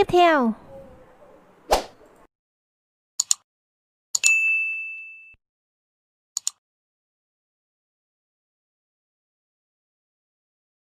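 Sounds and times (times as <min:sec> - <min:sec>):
notification bell ding: 0:04.2 - 0:05.4
mouse clicks: 0:06.4 - 0:06.6.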